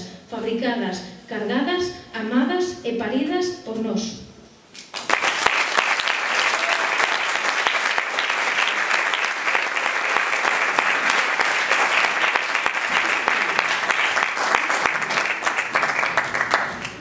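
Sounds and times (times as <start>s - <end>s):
audience applauding: 4.9s - 17.0s.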